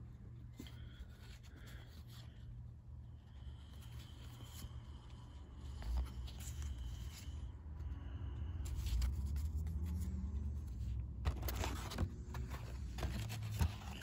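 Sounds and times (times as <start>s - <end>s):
cards shuffled by hand: 8.7s - 14.0s.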